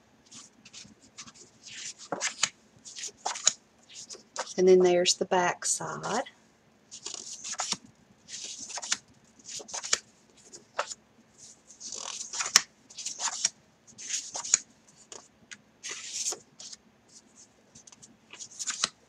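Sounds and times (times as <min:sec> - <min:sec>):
paper rustling and sliding: 0:00.3 - 0:04.6, 0:15.8 - 0:16.8, 0:17.9 - 0:18.9.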